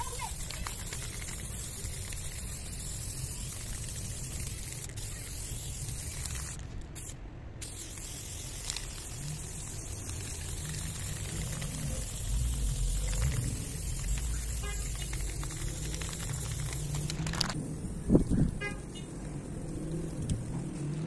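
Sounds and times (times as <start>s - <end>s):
spray paint can hissing: 0.0s - 21.0s
steady low rumble: 8.5s - 21.0s.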